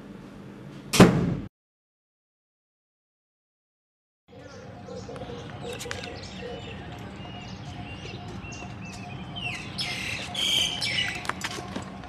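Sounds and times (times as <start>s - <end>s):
birds chirping: 4.3s - 12.0s.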